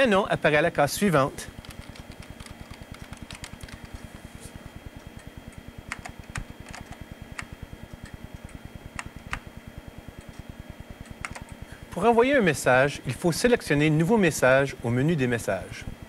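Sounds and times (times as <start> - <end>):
faint pulsing hum: 0.0 - 16.0
keyboard keys clicking: 1.6 - 4.0, 5.9 - 7.5, 11.2 - 11.6.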